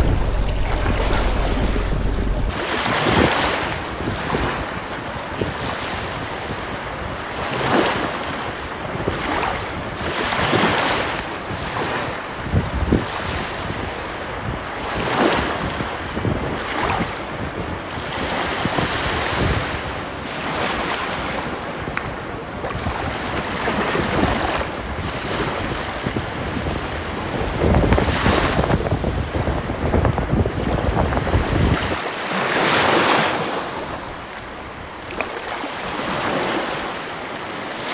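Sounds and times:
wind gusting on microphone: 0.0 - 7.5, 8.5 - 32.0
sea surf rushing: 0.0 - 12.3.

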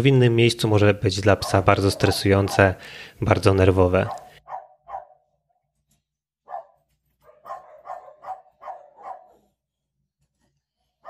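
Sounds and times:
dog barking: 1.4 - 2.8, 4.0 - 5.3, 6.4 - 9.6.

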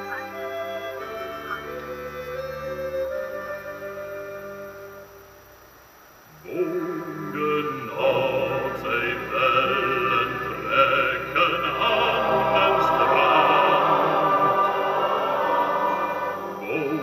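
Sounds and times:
sung music with accompaniment: 0.0 - 5.4.

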